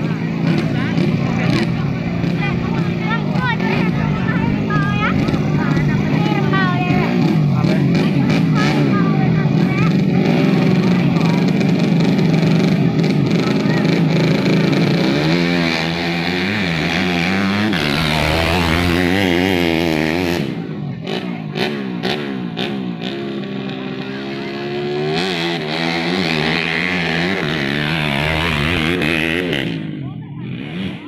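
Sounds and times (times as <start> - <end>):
dirt bike engines revving: 0.0 - 31.0.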